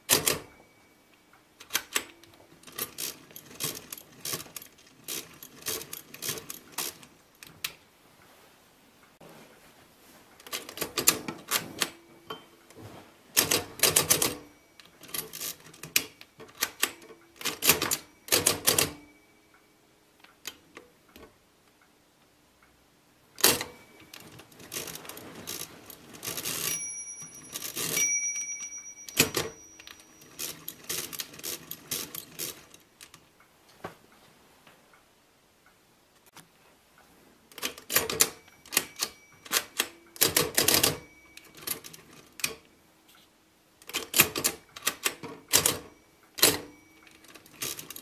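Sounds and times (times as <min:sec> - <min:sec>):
mechanical calculator clacking: 0:00.0 - 0:00.6, 0:01.6 - 0:07.1, 0:13.4 - 0:19.2, 0:23.4 - 0:33.2, 0:37.6 - 0:42.7, 0:43.8 - 0:48.0
short ringing tone: 0:23.6 - 0:24.4, 0:26.6 - 0:30.8, 0:38.4 - 0:40.1, 0:40.8 - 0:41.7, 0:45.8 - 0:47.4.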